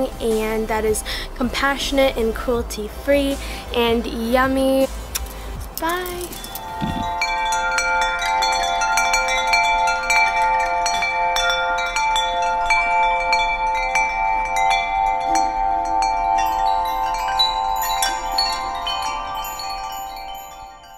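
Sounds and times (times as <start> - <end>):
wind chimes ringing: 5.2 - 20.9.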